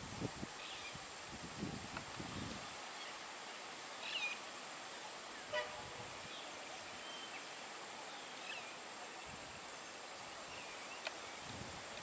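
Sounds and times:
faint bird chirps: 0:00.6 - 0:01.0, 0:02.3 - 0:09.4, 0:10.2 - 0:11.5.

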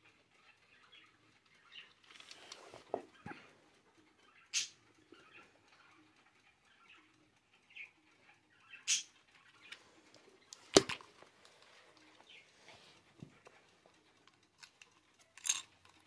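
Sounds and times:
sharp plastic click: 0:10.5 - 0:11.1.

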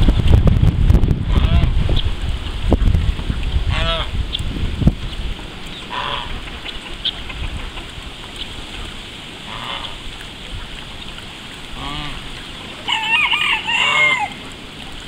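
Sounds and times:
poultry calling: 0:01.3 - 0:01.7, 0:03.7 - 0:04.1, 0:05.7 - 0:07.9, 0:09.5 - 0:10.0, 0:11.8 - 0:14.4.

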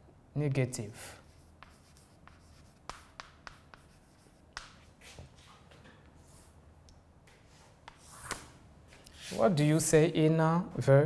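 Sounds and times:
chalk scratching on blackboard: 0:01.0 - 0:05.2, 0:07.8 - 0:08.4, 0:09.1 - 0:09.6
chalk tapping on board: 0:01.2 - 0:04.9, 0:07.8 - 0:08.4.

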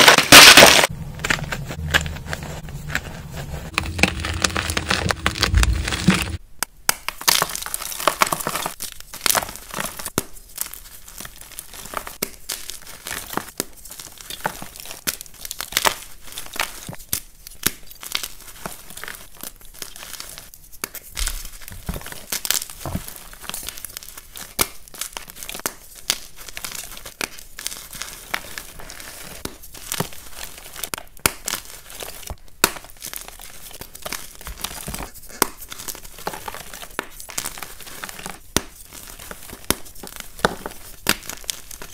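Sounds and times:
chalk crushed in hands: 0:00.0 - 0:10.7, 0:19.9 - 0:41.9.

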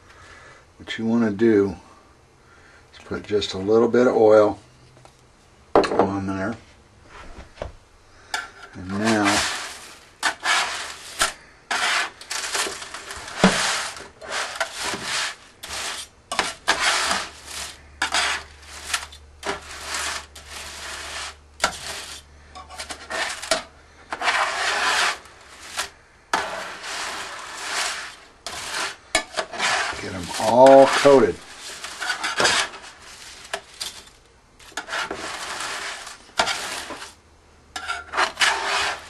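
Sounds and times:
metal spatula scraping metal pan: 0:08.3 - 0:39.0.

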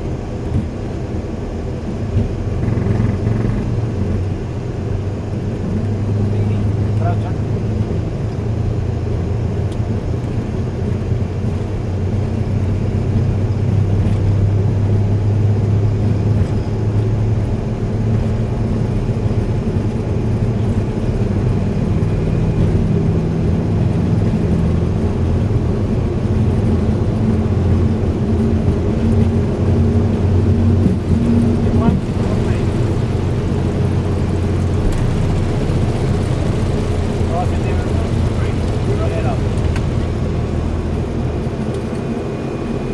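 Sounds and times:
jet engine drone: 0:00.0 - 0:42.9
low hum tones: 0:12.0 - 0:42.9.

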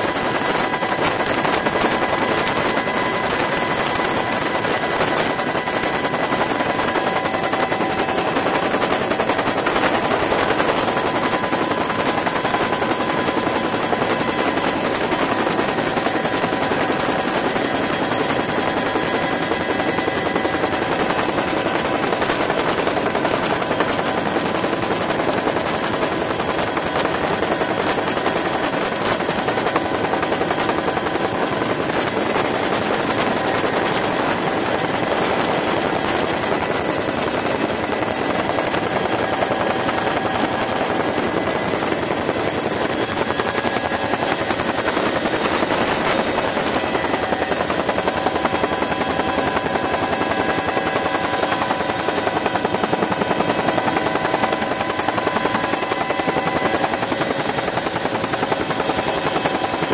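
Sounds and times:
helicopter turbine and rotor noise: 0:00.0 - 0:59.9.

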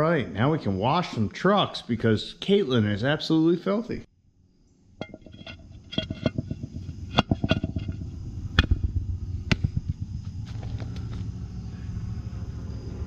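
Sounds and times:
low steady hum: 0:04.5 - 0:13.0.

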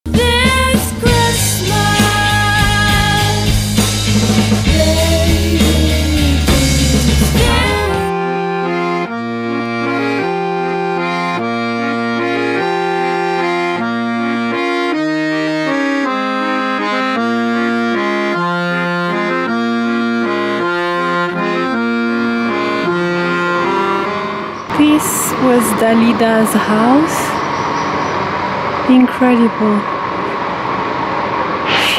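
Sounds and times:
loud music: 0:00.1 - 0:24.6
accordion music: 0:00.1 - 0:28.2.

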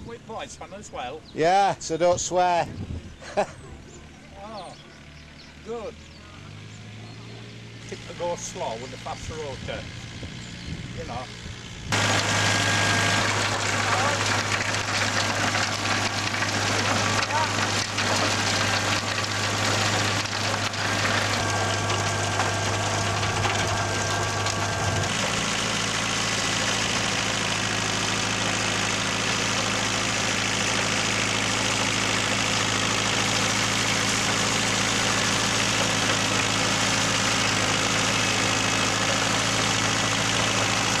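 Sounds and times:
tractor diesel engine running: 0:00.0 - 0:41.0.

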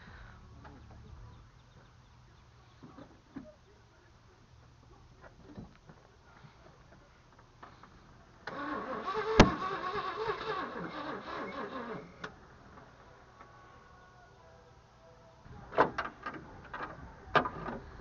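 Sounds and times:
starter motor cranking engine: 0:08.5 - 0:12.4.

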